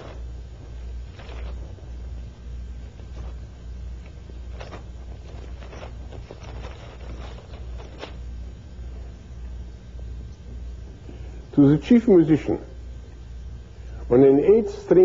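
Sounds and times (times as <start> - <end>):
book pages rustling: 0.0 - 2.0, 2.8 - 8.2
steady low hum: 0.0 - 15.0.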